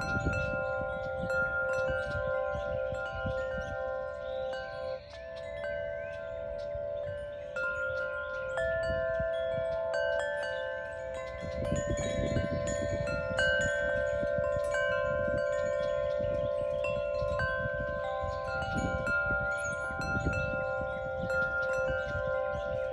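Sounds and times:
wind chimes ringing: 0.0s - 22.9s.

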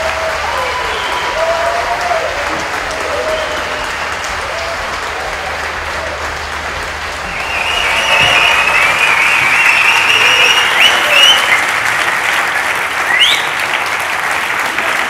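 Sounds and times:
audience applauding: 0.0s - 15.0s
high whistles: 3.1s - 4.6s, 7.2s - 11.8s, 13.0s - 13.6s.

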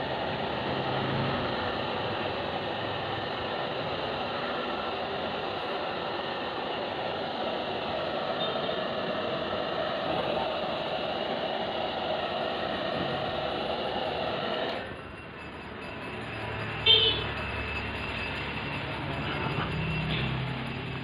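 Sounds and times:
hair dryer running: 0.0s - 14.8s.

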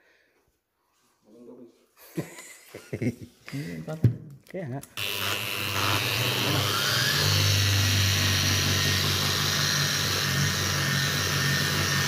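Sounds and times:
angle grinder whine polishing stone: 5.0s - 12.0s.

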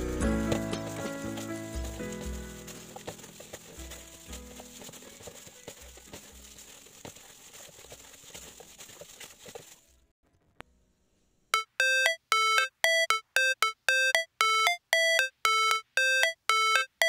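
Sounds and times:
plastic bag crinkling and squishing: 0.4s - 10.1s
electronic ringtone-like music: 11.6s - 17.0s.

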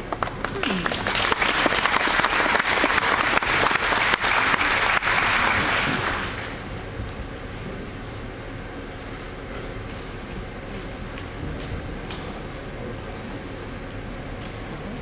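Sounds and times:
audience clapping: 0.0s - 6.8s.

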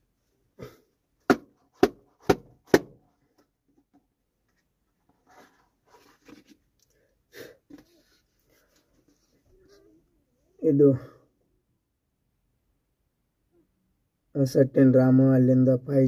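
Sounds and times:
sharp knocks on cardboard box: 1.3s - 3.0s.

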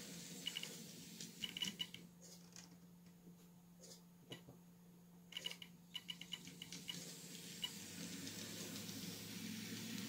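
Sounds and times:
model train motor whirring: 6.8s - 10.0s.

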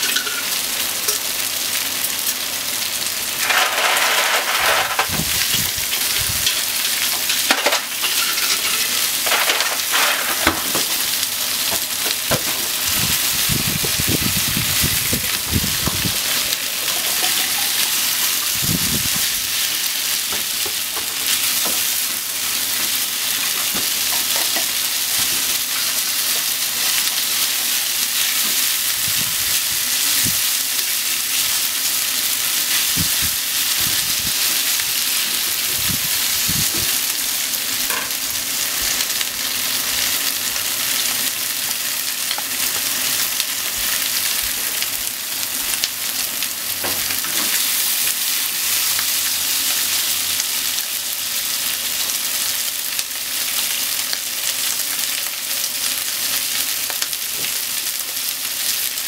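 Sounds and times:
meat and onion sizzling in pan: 0.0s - 59.0s
chopsticks scraping a pan: 3.4s - 5.2s, 6.4s - 10.5s.

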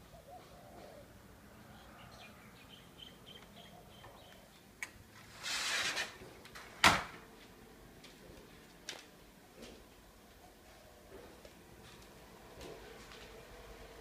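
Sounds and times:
faint bird chirps: 0.0s - 4.7s
sliding glass door rolling: 5.1s - 7.2s.

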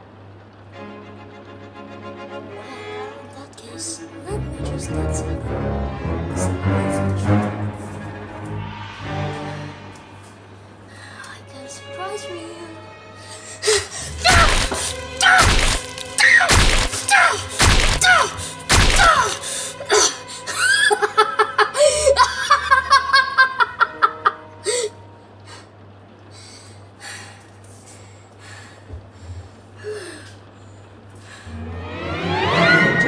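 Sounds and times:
low steady hum: 0.0s - 33.0s
loud hits: 14.1s - 19.4s
person laughing: 19.0s - 24.5s.

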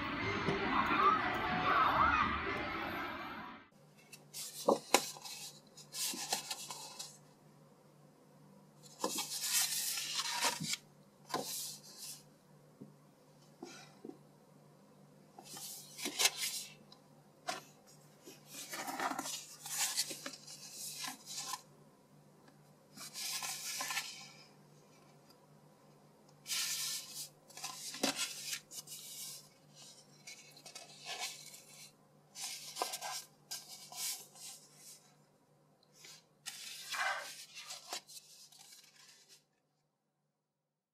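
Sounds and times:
paper pages rustling: 4.0s - 7.3s, 8.8s - 12.3s, 15.4s - 16.8s, 17.5s - 21.7s, 22.9s - 24.5s, 26.4s - 35.2s, 36.0s - 39.5s.

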